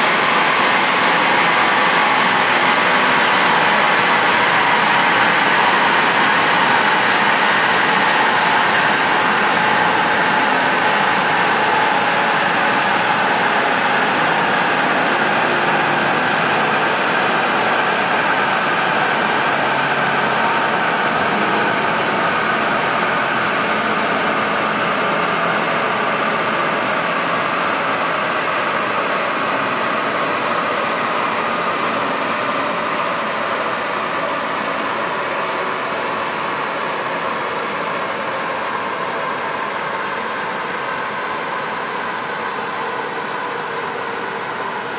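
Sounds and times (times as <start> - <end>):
car on dynamometer whining: 0.0 - 35.4.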